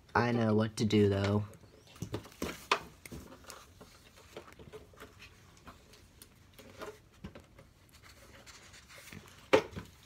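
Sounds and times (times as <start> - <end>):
paper rustling: 2.0 - 10.0.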